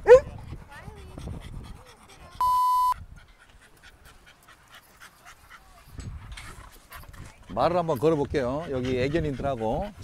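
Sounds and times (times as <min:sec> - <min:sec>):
dog panting: 0:00.0 - 0:02.4, 0:03.0 - 0:10.0
electronic beep: 0:02.4 - 0:03.0.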